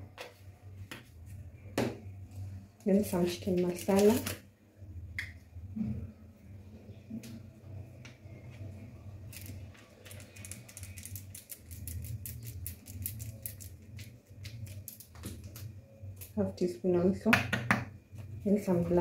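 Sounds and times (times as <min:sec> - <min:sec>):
steady low hum: 0:04.4 - 0:19.0
spice shaker rattling: 0:09.2 - 0:15.6.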